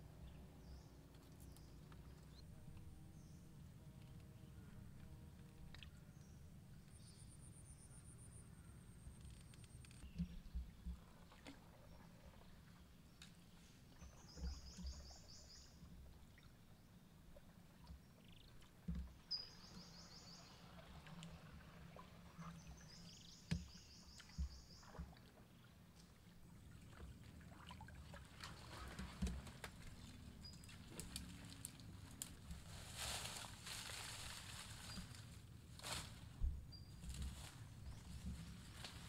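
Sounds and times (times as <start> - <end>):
paddle splashing water: 10.3 - 16.6, 17.2 - 36.1.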